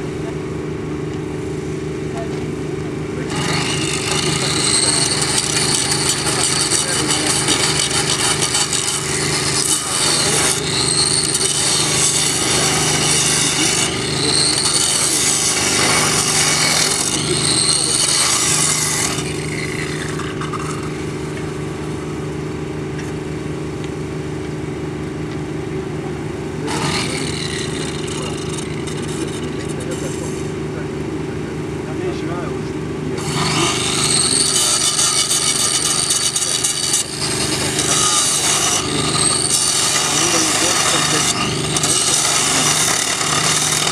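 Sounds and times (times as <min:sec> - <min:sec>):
power grinder grinding steel: 0:03.2 - 0:22.5, 0:26.6 - 0:30.7, 0:33.1 - 0:43.9.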